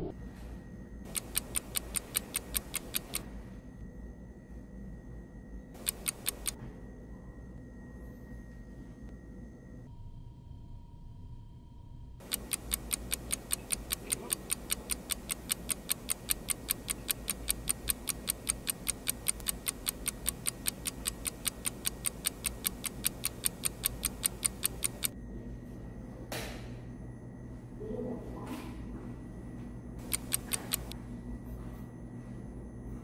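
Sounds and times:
fast clock ticking: 1.1 - 3.2, 5.8 - 6.6, 12.2 - 25.2, 30.0 - 31.0.

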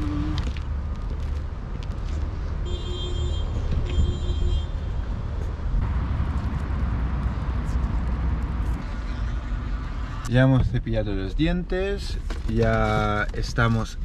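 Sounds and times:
low outdoor rumble: 5.2 - 14.0
steady high tones: 8.7 - 10.3.

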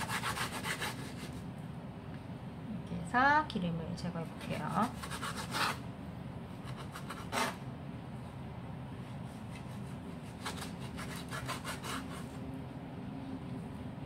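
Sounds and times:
knife cutting meat on wooden board: 4.4 - 5.8, 9.3 - 12.4.

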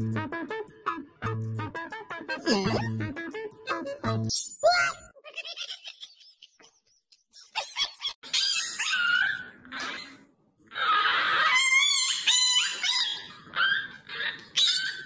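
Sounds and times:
dog whining and yelping: 8.2 - 15.0.

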